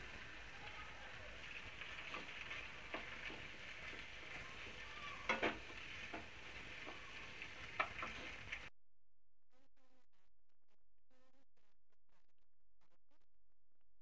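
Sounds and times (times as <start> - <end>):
food sizzling in a pan: 0.0 - 8.7
spatula scraping and knocking pan: 1.5 - 8.7.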